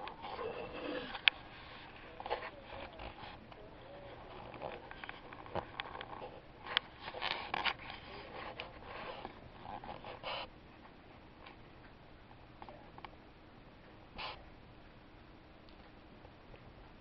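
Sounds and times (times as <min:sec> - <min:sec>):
cat sniffing: 0:06.2 - 0:10.5.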